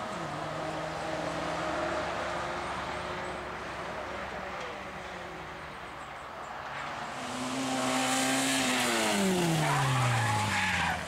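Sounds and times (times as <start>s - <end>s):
rally car engine passing by: 0.0s - 4.0s, 6.7s - 11.0s.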